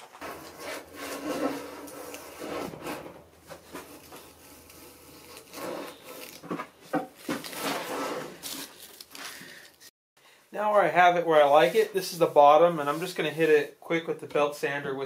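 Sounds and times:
hand plane shaving wood: 0.0s - 6.7s.

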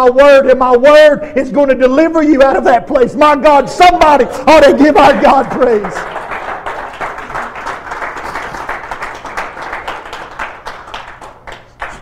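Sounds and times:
congregation clapping: 3.8s - 12.0s.

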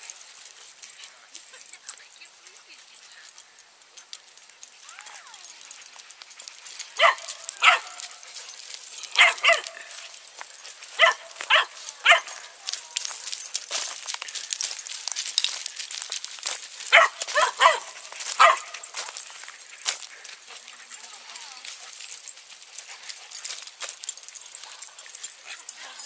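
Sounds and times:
dog barking: 7.0s - 8.2s, 9.2s - 9.9s, 11.0s - 12.5s, 16.9s - 18.9s.

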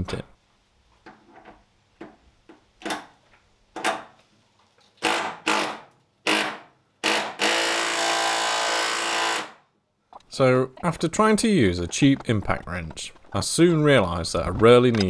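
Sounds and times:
impact wrench buzzing: 5.0s - 9.6s.

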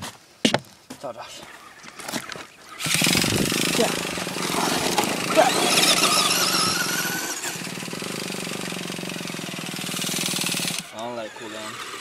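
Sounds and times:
small rc car engine revving: 2.7s - 12.0s.

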